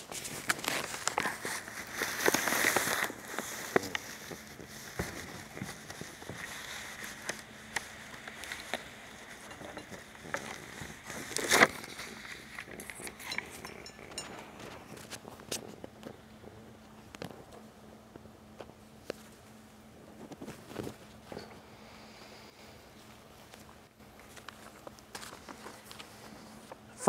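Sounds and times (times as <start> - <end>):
rustling: 0.0 - 17.7.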